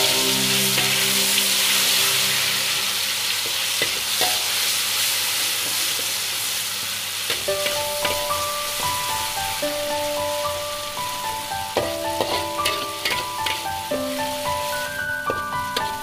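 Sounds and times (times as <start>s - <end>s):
spice paste sizzling in oil: 0.0s - 16.0s
metal spatula scraping a wok: 12.1s - 16.0s.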